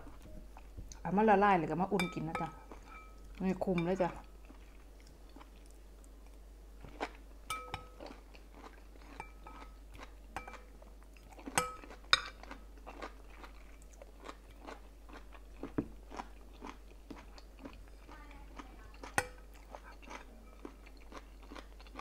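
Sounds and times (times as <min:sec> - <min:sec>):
person chewing food: 0:00.0 - 0:01.0, 0:02.5 - 0:03.5, 0:04.2 - 0:22.0
metal spoon clinking glass bowl: 0:02.0 - 0:04.0, 0:07.5 - 0:08.0, 0:09.2 - 0:09.6, 0:11.6 - 0:12.4.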